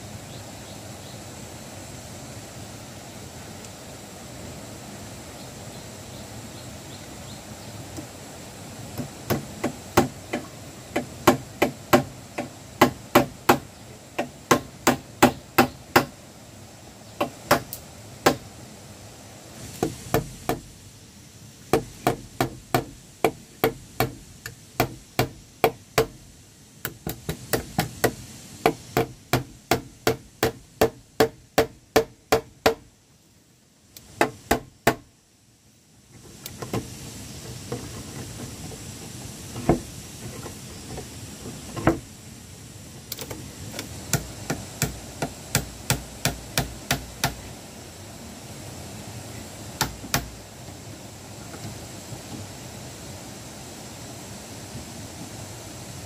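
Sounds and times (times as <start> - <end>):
hammer knocking on wooden planks: 8.9 - 16.1, 17.2 - 18.4, 19.8 - 20.7, 21.7 - 26.2, 26.8 - 32.8, 34.2 - 35.0, 44.1 - 47.4, 49.8 - 50.3.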